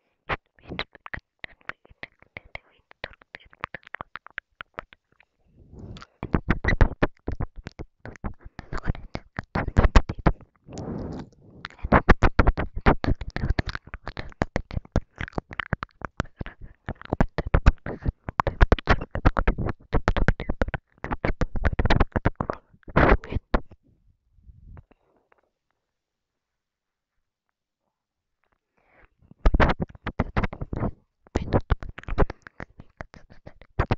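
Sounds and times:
breathy whispering: 0.1 - 19.8, 28.7 - 33.9
wet mouth clicks and smacks: 0.3 - 23.8, 29.4 - 33.9.

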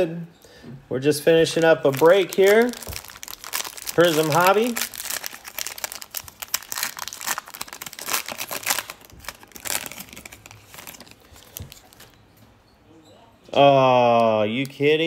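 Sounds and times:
foil wrapper crinkling and tearing: 1.6 - 12.2.

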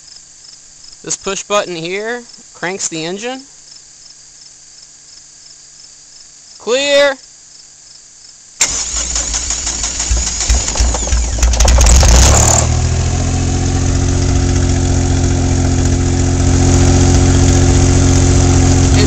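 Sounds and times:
electric starter cranking: 8.6 - 13.0
car engine starting and idling: 8.6 - 19.0.

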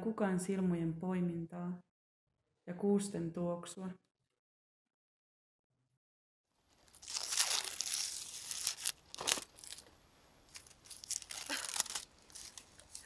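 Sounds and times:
paper tearing and crinkling: 6.7 - 13.0.

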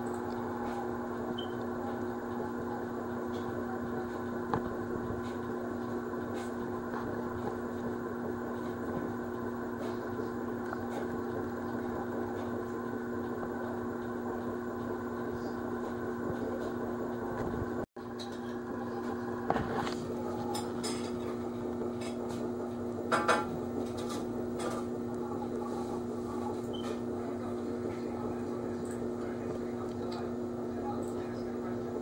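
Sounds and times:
room noise: 0.0 - 17.9
low mechanical hum: 0.0 - 32.0.

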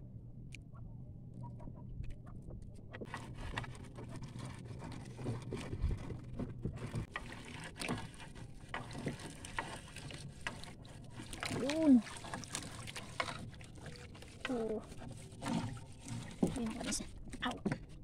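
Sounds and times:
low steady hum: 0.0 - 18.0
water splashing and dripping: 6.8 - 17.6.

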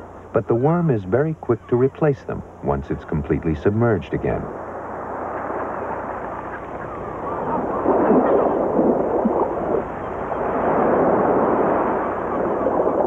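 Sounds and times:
surf washing over sand: 7.4 - 13.0.

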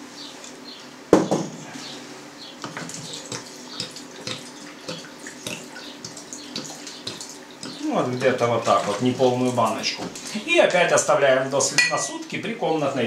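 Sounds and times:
water glugging into a glass jar: 2.6 - 10.2.

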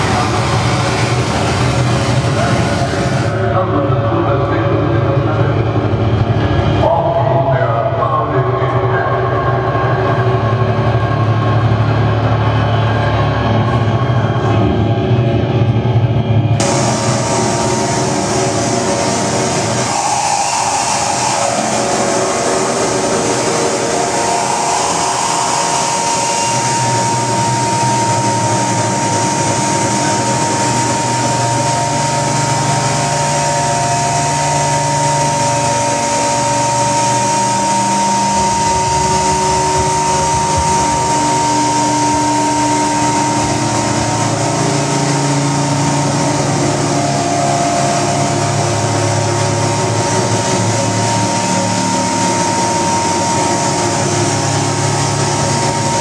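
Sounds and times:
dense wall of hiss: 0.0 - 5.6, 16.6 - 56.0
low droning tones: 0.0 - 56.0
high held tone: 16.6 - 56.0.

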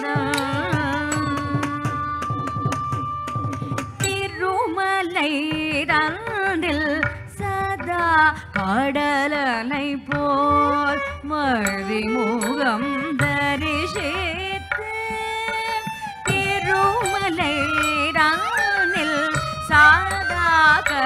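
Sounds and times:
person singing ornamented melody: 0.0 - 2.7, 10.5 - 14.2.

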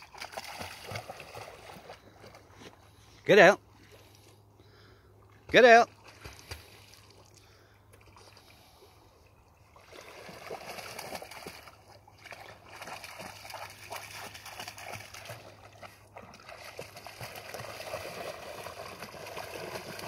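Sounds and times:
water splashing and sloshing: 0.0 - 20.0.

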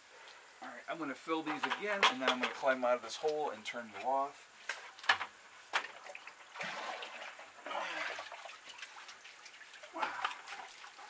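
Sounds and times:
bucket filling with water: 5.8 - 11.0
floodwater sloshing and gurgling: 5.8 - 11.0.

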